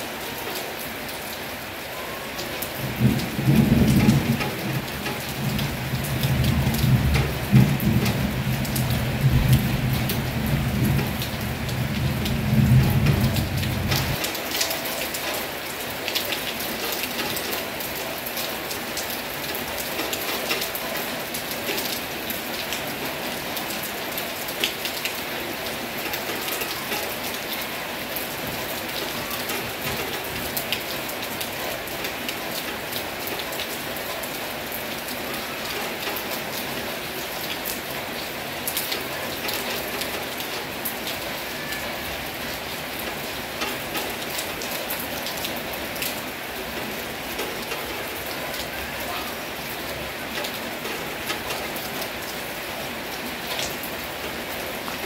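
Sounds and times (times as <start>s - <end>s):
heavy rain: 0.0s - 55.0s
thunder rumbling: 2.8s - 14.2s.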